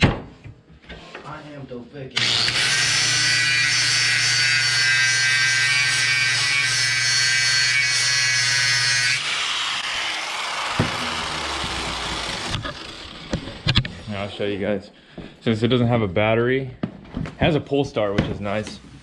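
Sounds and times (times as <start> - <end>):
angle grinder grinding steel: 2.2 - 14.1.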